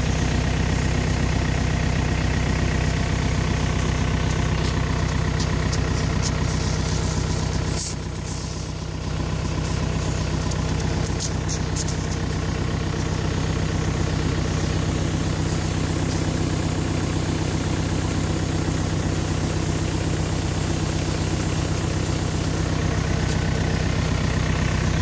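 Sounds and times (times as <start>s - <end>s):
sprayer jetting: 0.0s - 25.0s
tractor engine running: 0.0s - 25.0s.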